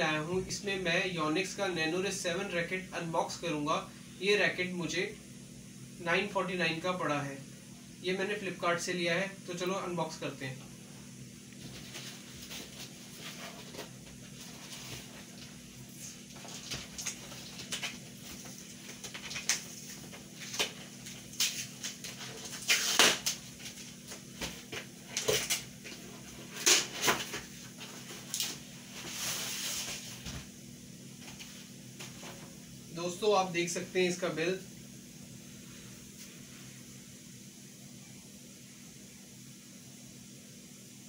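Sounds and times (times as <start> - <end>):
cardboard and tape tearing: 16.0 - 23.8, 26.5 - 27.4.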